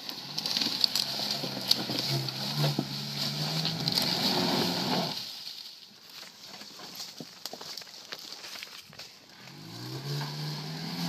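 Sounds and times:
vehicle engine running: 0.0s - 5.2s
leaves and sticks crackling under tyres: 0.0s - 11.0s.

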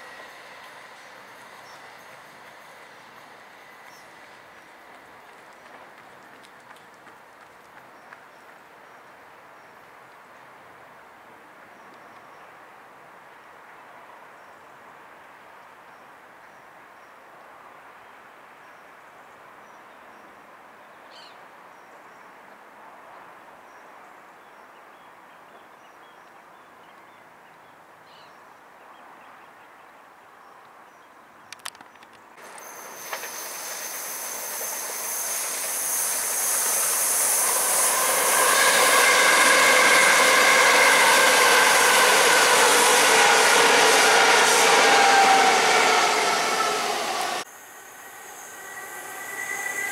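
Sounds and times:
whining train tones: 0.0s - 5.5s, 32.4s - 49.9s
electric train passing: 0.0s - 7.4s, 32.4s - 49.9s.

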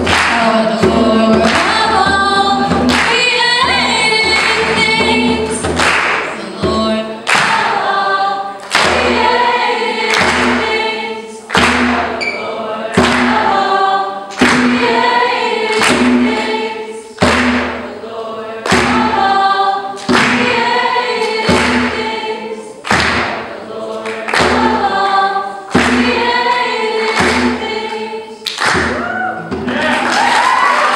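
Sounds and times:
acoustic guitar: 0.0s - 7.9s
loud percussive hits: 0.0s - 29.9s
group of voices singing: 0.0s - 30.9s.

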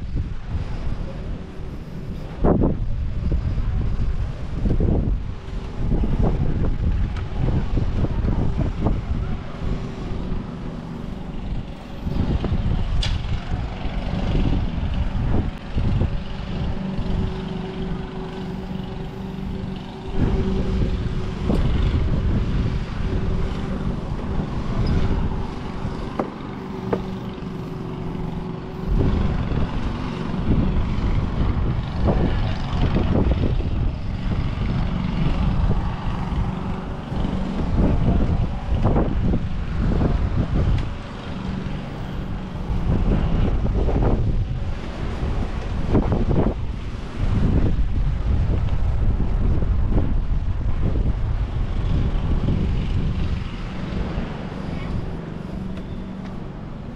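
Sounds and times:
steady mechanical hum: 0.0s - 56.9s
wind buffeting microphone: 0.0s - 56.9s.

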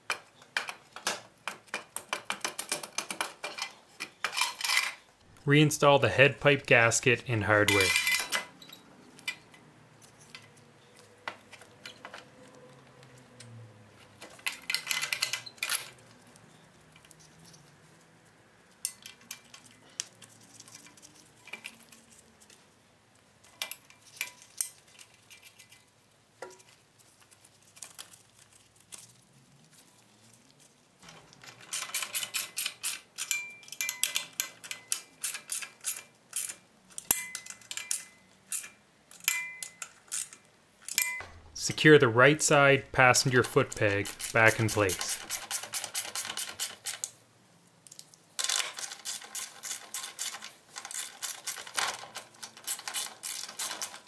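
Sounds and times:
metal tool clinks: 33.2s - 35.0s, 37.1s - 40.0s, 40.9s - 41.6s.

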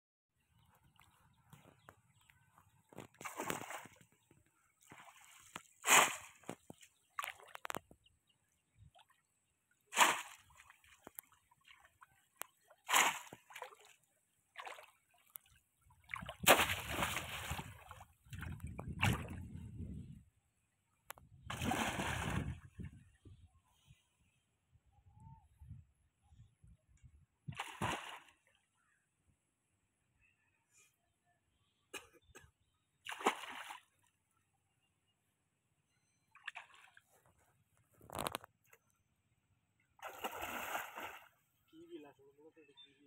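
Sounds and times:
water splashing and sloshing: 0.6s - 8.0s, 8.8s - 19.6s, 21.5s - 22.9s, 27.5s - 28.5s, 33.1s - 34.1s, 36.4s - 38.5s, 40.0s - 41.4s.

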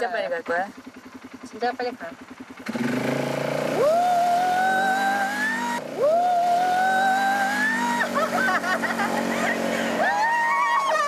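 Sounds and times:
quad bike engine whining: 0.0s - 11.0s
high shrieking voices: 3.8s - 8.5s.

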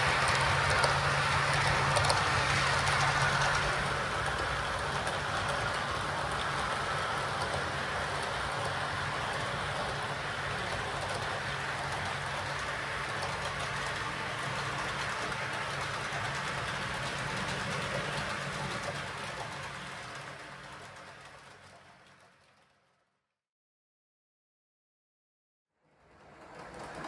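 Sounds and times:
low motor hum: 0.0s - 21.5s
model train wheels rumbling: 0.0s - 23.0s, 25.8s - 27.0s.

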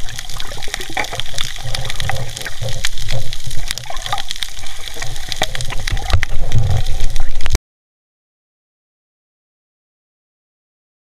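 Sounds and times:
underwater rushing and bubbling: 0.0s - 7.6s.

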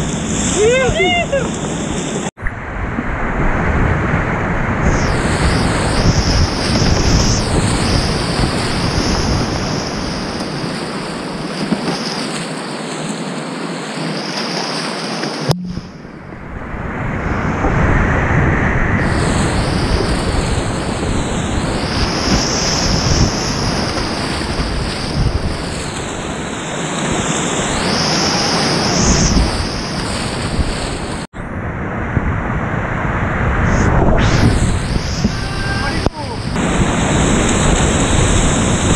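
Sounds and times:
water splashes: 0.1s - 16.8s, 17.6s - 31.3s
whitewater rapids rushing: 19.2s - 31.3s.

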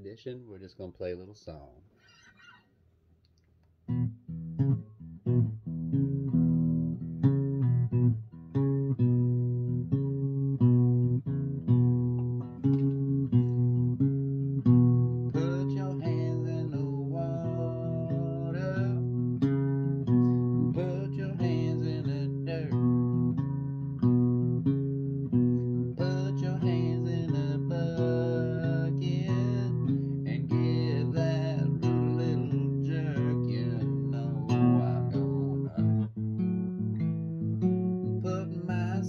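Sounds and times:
acoustic guitar: 1.9s - 2.8s, 3.8s - 39.0s
man singing: 15.3s - 19.4s, 20.0s - 23.3s, 25.6s - 36.1s, 38.1s - 39.0s.

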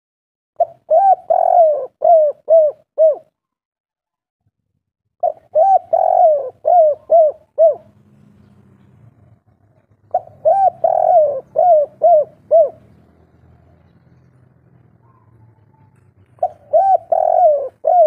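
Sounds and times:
dove cooing: 0.6s - 3.4s, 5.2s - 8.0s, 9.7s - 13.0s, 15.0s - 18.0s.

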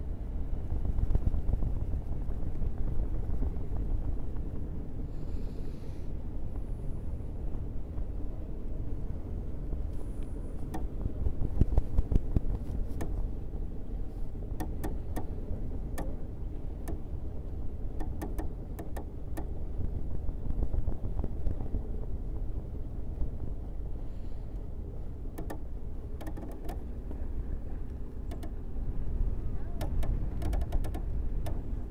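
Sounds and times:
wind buffeting microphone: 0.0s - 31.9s
sharp clicks and ticks: 14.6s - 15.3s, 18.0s - 19.5s, 25.4s - 25.6s, 26.2s - 26.8s, 28.2s - 28.6s, 29.8s - 31.6s.

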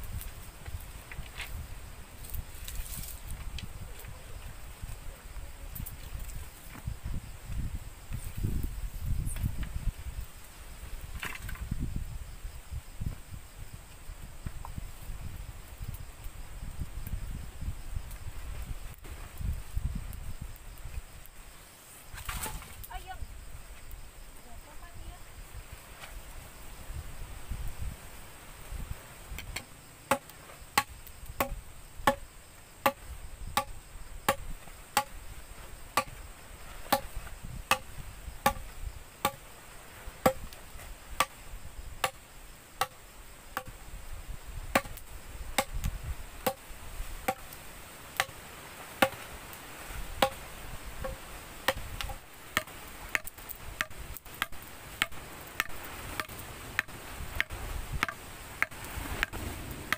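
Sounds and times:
machete chopping bamboo: 29.4s - 32.2s, 32.8s - 33.0s, 33.6s - 35.2s, 36.0s - 36.2s, 36.8s - 39.5s, 40.2s - 40.6s, 41.2s - 41.4s, 42.0s - 42.2s, 42.8s - 43.0s, 43.6s - 43.8s, 44.7s - 45.0s, 45.6s - 47.6s, 48.2s - 48.4s, 49.0s - 49.3s, 50.2s - 59.4s.

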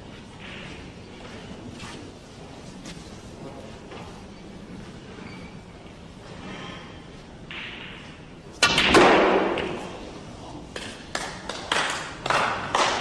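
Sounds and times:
snooker cue striking ball: 8.7s - 10.0s.

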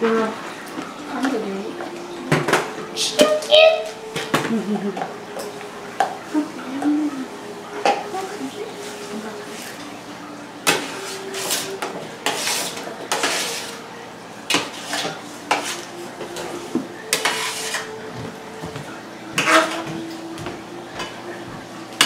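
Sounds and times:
dishes and utensils clinking: 7.7s - 8.4s, 10.6s - 13.8s, 14.5s - 22.0s.

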